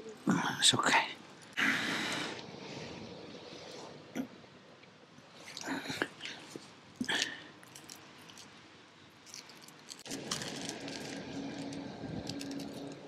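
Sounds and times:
steady background hum: 0.0s - 13.0s
small rustles and clicks: 5.4s - 8.6s, 9.2s - 13.0s.

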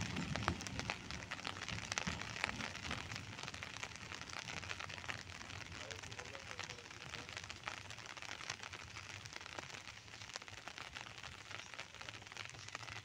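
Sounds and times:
light rain pattering: 0.0s - 13.0s.

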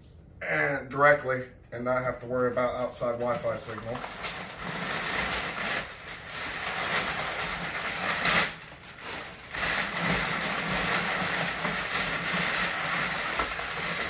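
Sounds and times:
packing paper rustling: 2.8s - 14.0s.

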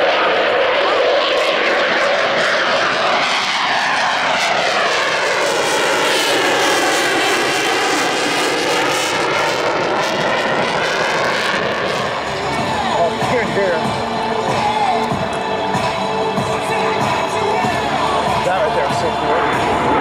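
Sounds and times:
jet roar: 0.0s - 20.0s.

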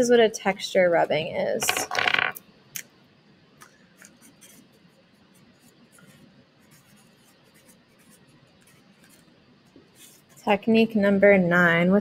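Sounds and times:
marker scratching on paper: 4.0s - 10.6s.

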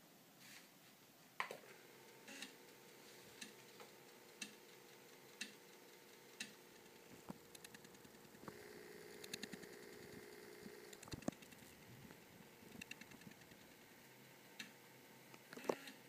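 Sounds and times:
drive motor hum: 1.7s - 14.9s
floppy drive head clicking: 3.4s - 13.7s.

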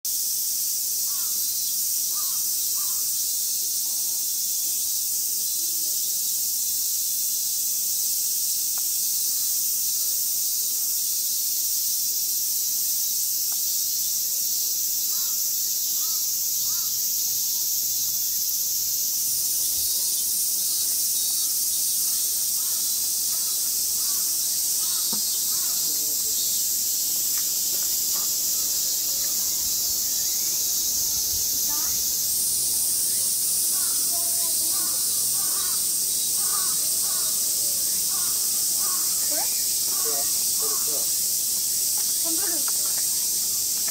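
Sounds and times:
insects hissing: 0.0s - 43.9s
pulsing insect layer: 0.1s - 43.9s.

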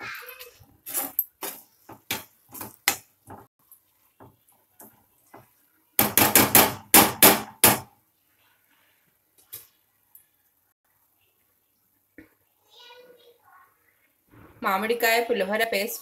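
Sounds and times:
spoon scraping and knocking a pan: 0.8s - 3.5s.

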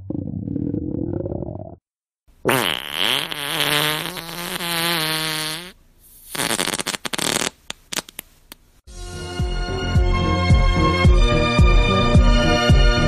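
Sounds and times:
long wavering fart: 2.4s - 5.8s
crackling sputtering fart: 2.4s - 8.2s.

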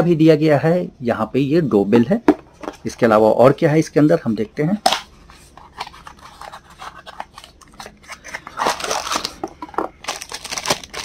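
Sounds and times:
plastic bag crinkling: 5.7s - 11.0s.

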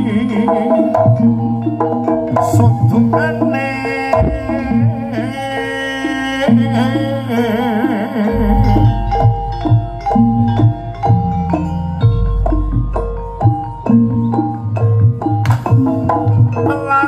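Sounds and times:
gamelan metallophones melody: 0.0s - 17.0s
wavering melody line: 0.0s - 17.0s
heavy drum beats: 4.1s - 5.5s, 14.9s - 16.9s.

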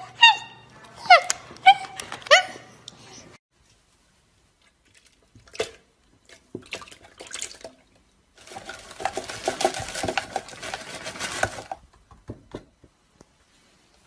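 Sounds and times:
bag rustling: 8.4s - 11.8s
food pieces clattering in blender jar: 8.4s - 12.0s.

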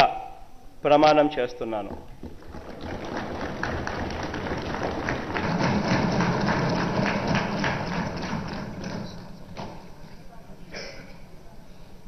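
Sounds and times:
people thumping wooden desks: 1.8s - 10.3s
people clapping: 1.9s - 9.9s.

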